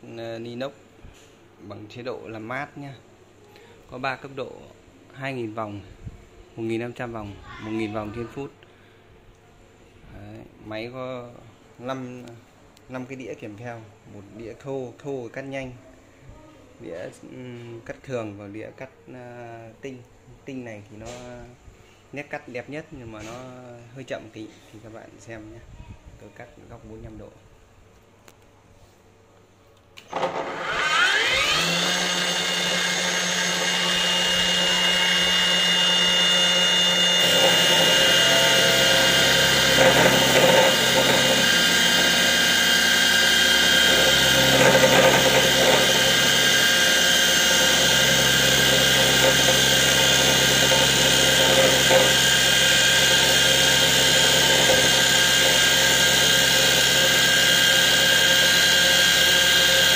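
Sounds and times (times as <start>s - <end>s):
abrasive cut-off saw motor whine: 30.1s - 59.9s
disc grinding through steel: 30.1s - 59.9s.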